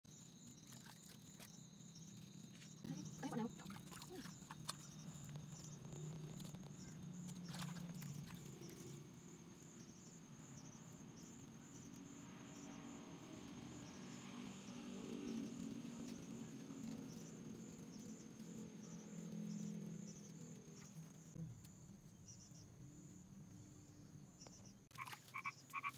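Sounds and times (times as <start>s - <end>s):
insect trilling: 24.9s - 25.9s.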